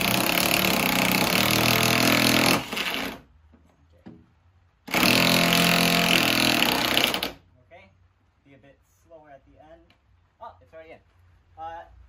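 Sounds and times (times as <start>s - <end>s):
impact driver hammering screw: 4.9s - 7.4s.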